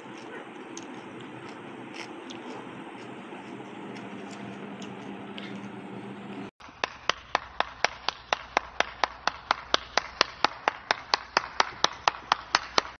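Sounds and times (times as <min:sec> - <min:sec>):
person clapping hands: 0:06.8 - 0:13.0.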